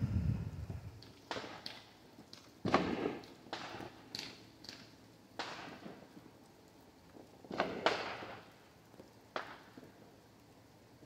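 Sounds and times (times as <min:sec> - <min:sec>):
distant fireworks bangs: 0:02.6 - 0:04.2, 0:07.5 - 0:08.5, 0:09.3 - 0:10.0.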